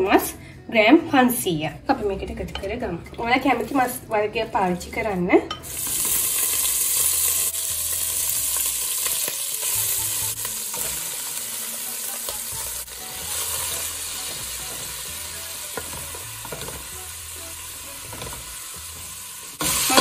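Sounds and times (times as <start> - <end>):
meat sizzling in oil: 5.6 - 20.0.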